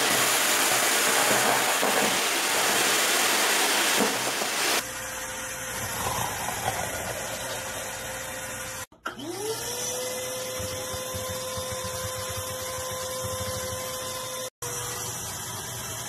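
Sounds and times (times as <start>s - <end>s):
vacuum cleaner whine: 0.0s - 16.0s.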